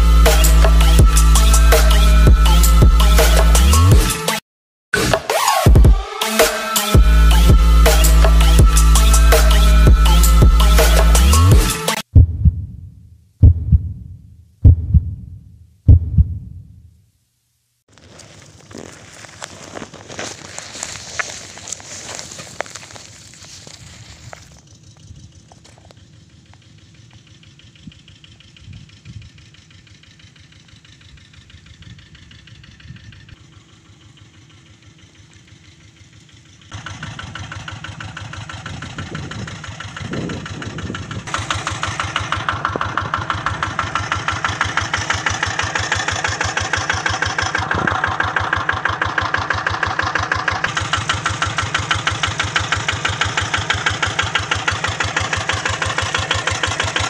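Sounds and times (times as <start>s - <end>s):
diesel engine chugging: 0.0s - 4.3s, 5.8s - 12.1s, 18.0s - 57.0s.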